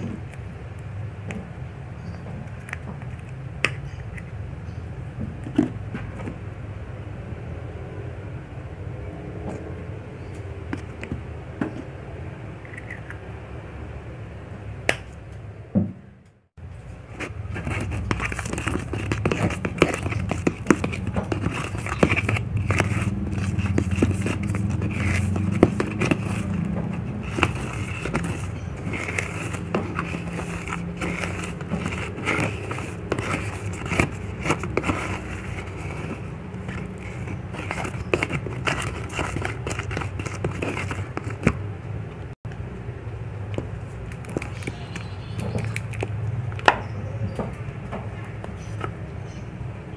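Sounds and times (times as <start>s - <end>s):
spatula scraping paste in bowl: 17.1s - 41.6s.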